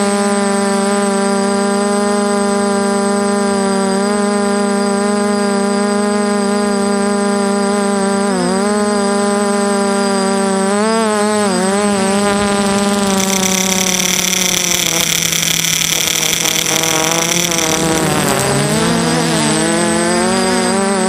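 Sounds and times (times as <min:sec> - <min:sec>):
drone propellers buzzing: 0:08.7 - 0:21.0
high-pitched whine: 0:09.8 - 0:21.0.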